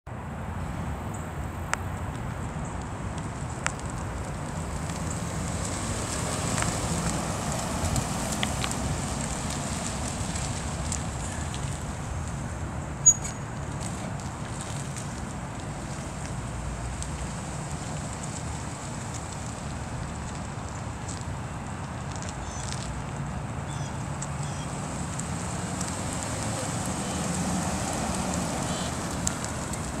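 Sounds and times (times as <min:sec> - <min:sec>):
car engine and tyre rumble: 0:00.1 - 0:30.0
wind noise on microphone: 0:00.2 - 0:16.5.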